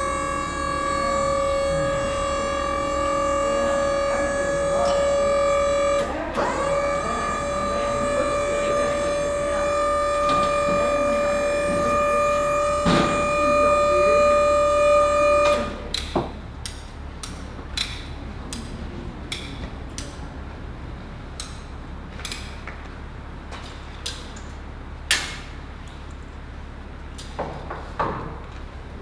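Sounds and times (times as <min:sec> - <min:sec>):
high-pitched tone with overtones: 0:00.0 - 0:15.9.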